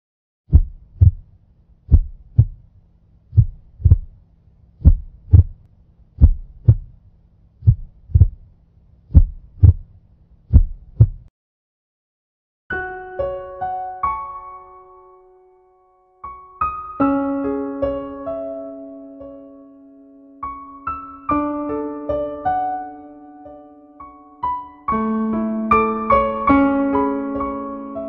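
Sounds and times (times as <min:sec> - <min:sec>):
heartbeat thumps: 0:00.5 - 0:01.2, 0:01.9 - 0:02.7, 0:03.3 - 0:04.2, 0:04.8 - 0:05.6, 0:06.2 - 0:07.0, 0:07.6 - 0:08.4, 0:09.1 - 0:09.9, 0:10.5 - 0:11.3.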